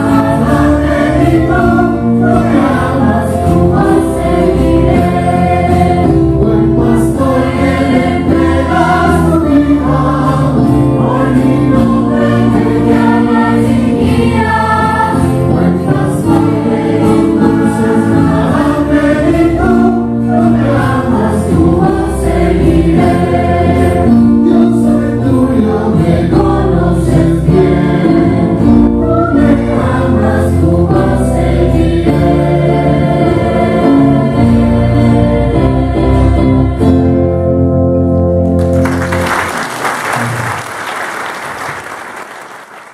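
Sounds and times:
choir singing: 0.0s - 37.4s
instrumental backing: 0.0s - 39.6s.

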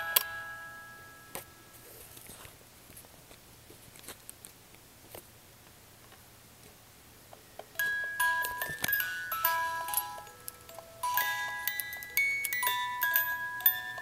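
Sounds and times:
music box notes ringing: 0.0s - 1.8s, 7.8s - 14.0s.

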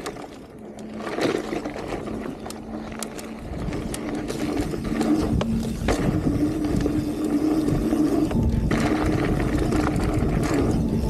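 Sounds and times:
bike clicks and rattles: 0.0s - 11.0s
bike freehub buzzing: 0.0s - 11.0s.

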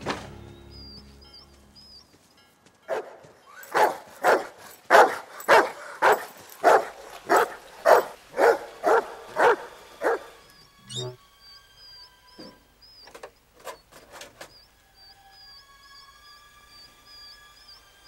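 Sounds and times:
dog barking: 2.9s - 10.4s.

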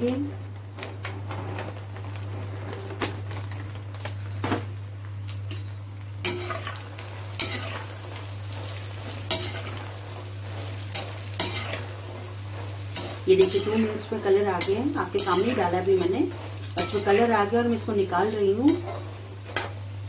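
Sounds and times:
faint sizzle: 0.0s - 20.0s
metal spatula scraping a pan: 6.2s - 17.8s.

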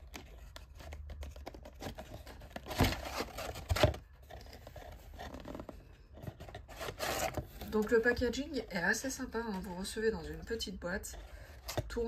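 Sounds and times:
cardboard box scraping and rustling: 0.2s - 7.8s.

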